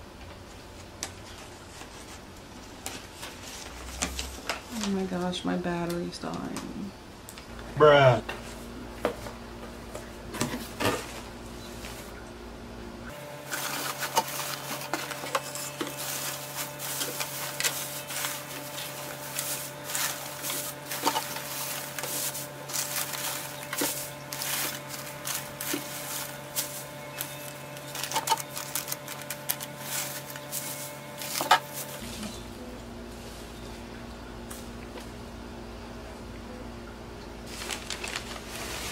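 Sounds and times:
steady low hum: 0.0 - 38.9
shredded paper rustling: 1.0 - 5.0, 13.1 - 33.9, 37.4 - 38.9.

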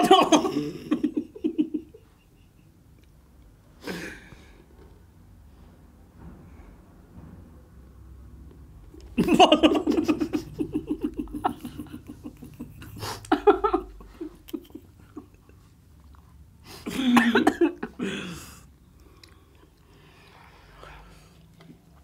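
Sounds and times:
people laughing out loud: 9.2 - 15.6.

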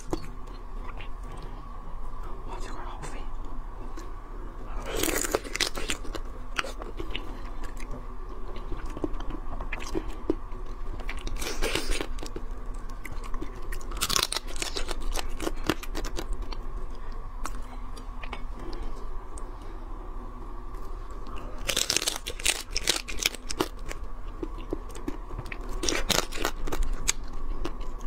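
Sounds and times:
person crunching and chewing: 4.7 - 18.8, 21.3 - 28.0.

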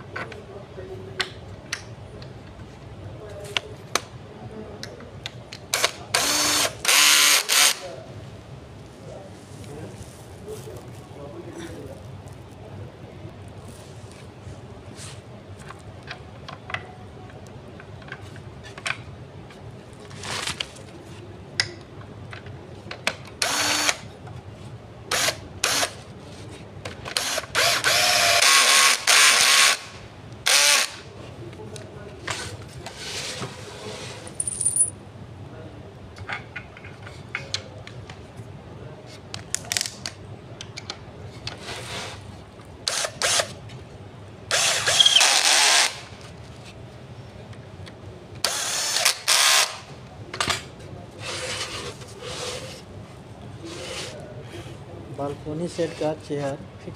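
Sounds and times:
drill driving screws into wood: 5.7 - 7.8, 23.4 - 24.0, 25.1 - 26.0, 27.1 - 31.0, 42.9 - 43.5, 44.5 - 46.1, 48.4 - 49.8
clicks and knocks of tools: 36.2 - 38.2.

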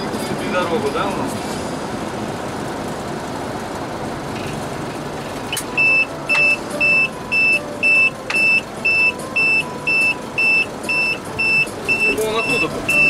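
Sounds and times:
vehicle running noise: 0.0 - 13.0
short high electronic beeps: 5.8 - 13.0.

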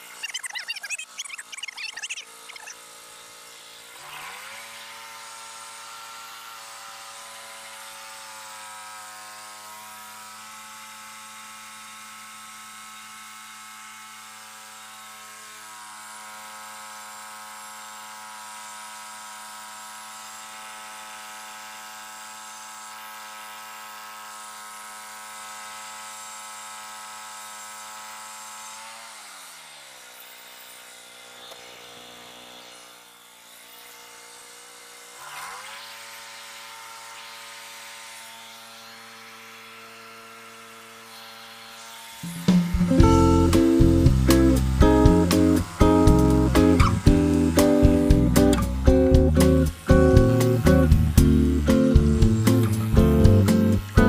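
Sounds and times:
band saw blade cutting wood: 0.0 - 9.2, 28.6 - 54.0
small gas engine running: 0.0 - 54.0.

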